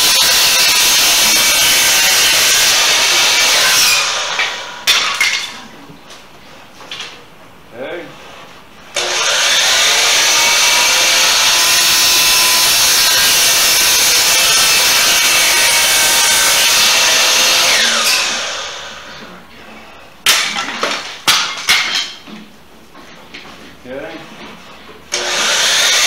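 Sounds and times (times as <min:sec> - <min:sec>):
miter saw cutting wood: 0:00.0 - 0:05.0, 0:09.0 - 0:19.3, 0:25.1 - 0:26.0.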